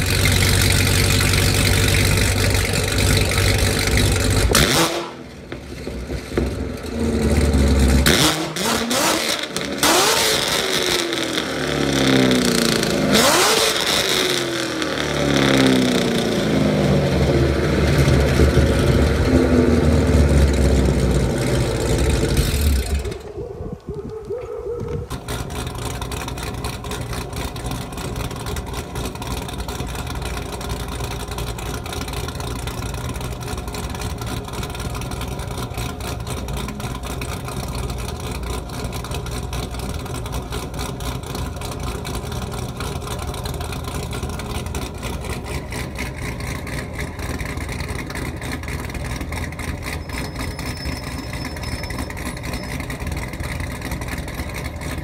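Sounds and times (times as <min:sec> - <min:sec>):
car engine idling: 0:00.0 - 0:23.6, 0:24.6 - 0:55.0.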